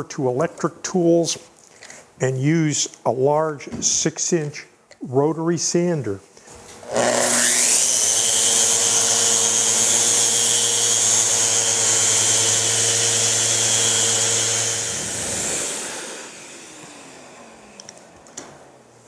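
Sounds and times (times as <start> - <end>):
orbital sander on wood: 6.5 - 18.2.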